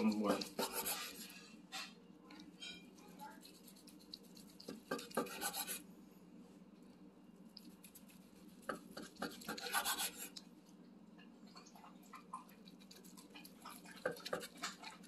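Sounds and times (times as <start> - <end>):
knife sawing through meat: 0.2 - 1.3, 9.0 - 10.3.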